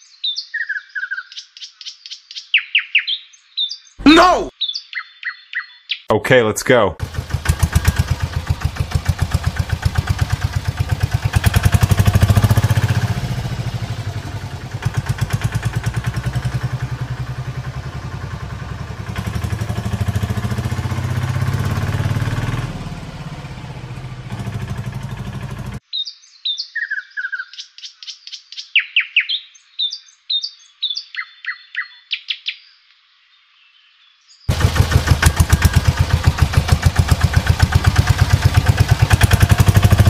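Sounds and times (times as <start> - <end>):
small engine idling: 7.0 - 25.8, 34.5 - 40.0.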